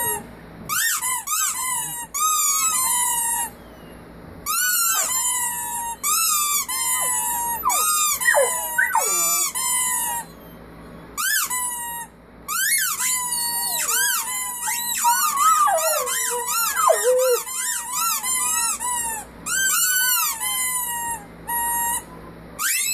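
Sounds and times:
rubber squeaky toy squeaking: 4.5s - 10.5s, 12.5s - 20.8s
puppy howling: 4.5s - 10.6s, 13.2s - 18.1s.

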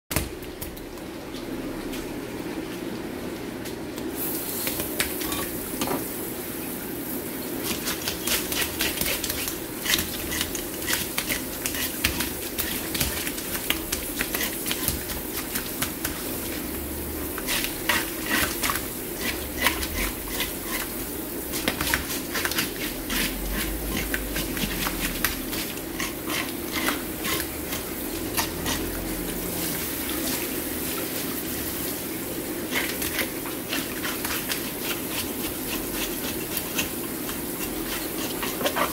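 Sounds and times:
fish scales being scraped: 7.6s - 16.1s, 17.3s - 29.0s, 32.7s - 38.9s
water spraying from a hose: 7.6s - 38.9s.

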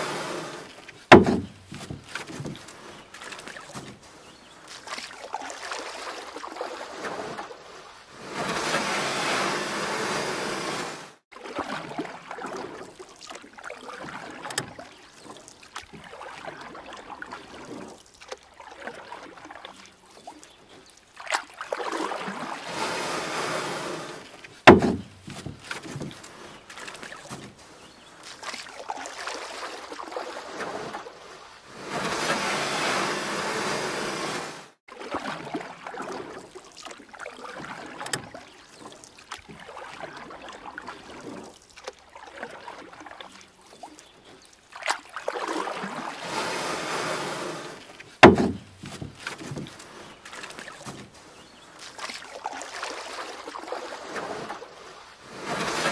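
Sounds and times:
paddle splashing water: 0.0s - 55.9s
sharp knocks: 1.1s - 2.6s, 24.7s - 26.2s, 48.2s - 49.7s.

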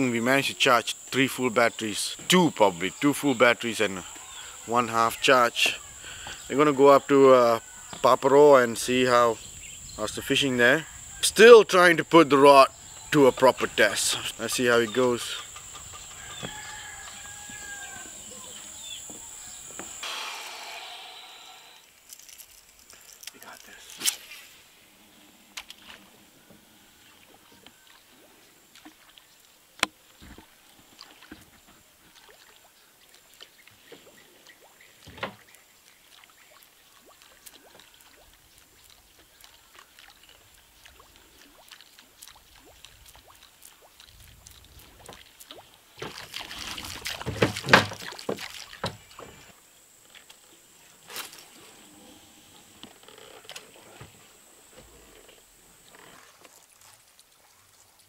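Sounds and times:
water sloshing around boat: 25.6s - 58.0s.

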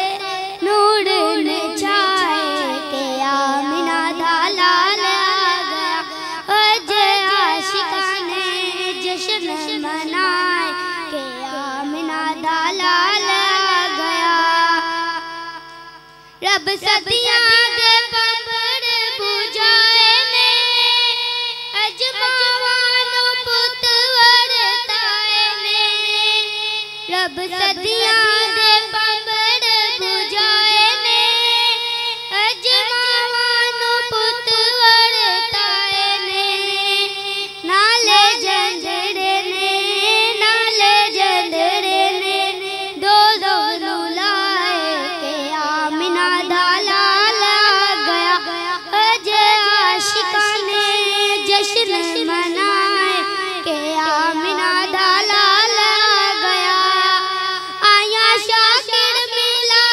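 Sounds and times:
steady low hum: 0.0s - 59.7s
boy singing through pa system: 0.0s - 59.9s.

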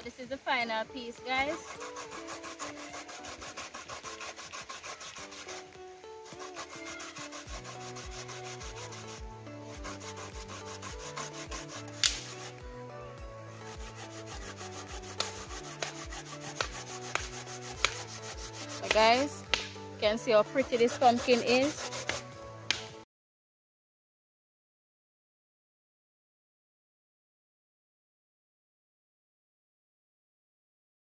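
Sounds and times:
grater rasping: 1.6s - 5.6s, 6.3s - 12.5s, 13.7s - 19.3s, 20.1s - 22.3s.

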